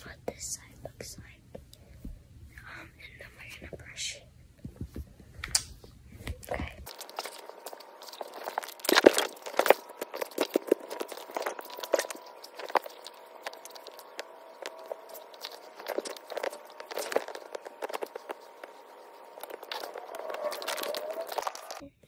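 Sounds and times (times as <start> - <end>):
rustling and soft taps: 4.6 - 21.7.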